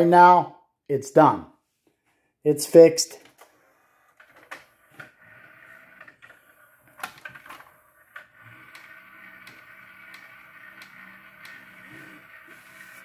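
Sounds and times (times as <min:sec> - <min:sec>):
faint motor whir: 0:03.4 - 0:13.0.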